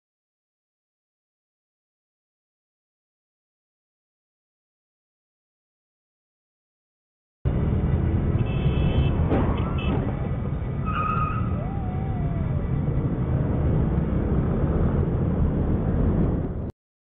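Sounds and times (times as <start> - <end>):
idling scooters and road traffic: 7.5 - 16.6.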